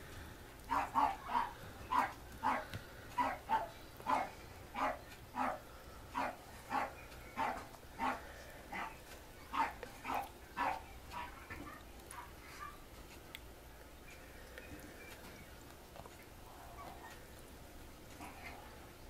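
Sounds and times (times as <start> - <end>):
dog barking: 0.7 - 2.6, 3.2 - 5.6, 6.2 - 12.8.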